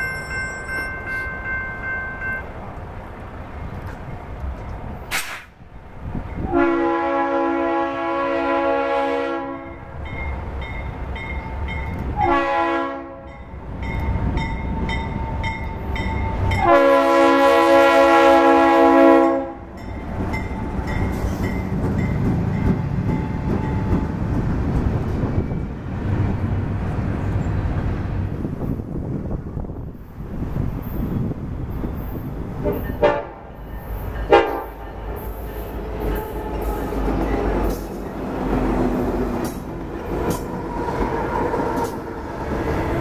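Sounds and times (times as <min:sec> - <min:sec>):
locomotive air horn blasts: 0:06.4 - 0:09.8, 0:12.2 - 0:13.4, 0:16.5 - 0:19.7, 0:32.6 - 0:33.5, 0:34.2 - 0:34.8
locomotive engine rumble: 0:09.7 - 0:43.0
train wheels clattering over rail: 0:19.8 - 0:26.4, 0:34.0 - 0:43.0.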